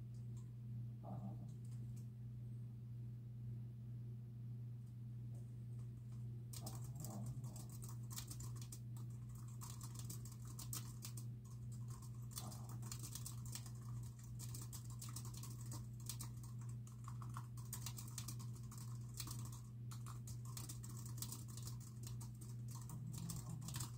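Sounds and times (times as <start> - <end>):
steady low hum: 0.0 - 23.9
typing on a keyboard: 6.5 - 23.9.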